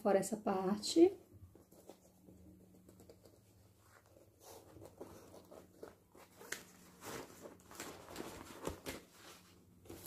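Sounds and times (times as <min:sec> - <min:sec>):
fabric rustling and crinkling: 0:03.6 - 0:10.0.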